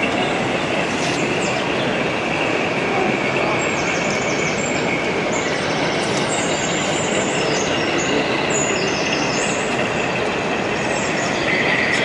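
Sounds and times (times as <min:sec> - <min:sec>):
hall background noise: 0:00.0 - 0:12.0.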